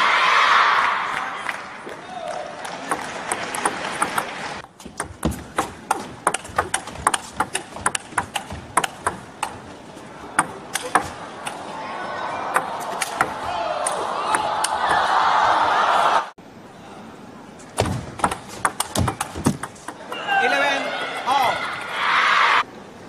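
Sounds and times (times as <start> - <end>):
crowd noise in hall: 0.0 - 6.2, 9.3 - 18.2, 19.9 - 23.0
table tennis ball clicks: 17.8 - 20.0.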